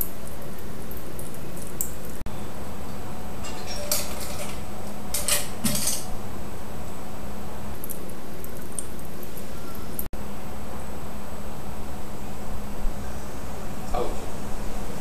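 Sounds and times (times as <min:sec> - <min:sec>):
glassware and bar tools clinking: 0:03.4 - 0:04.6, 0:05.2 - 0:06.1.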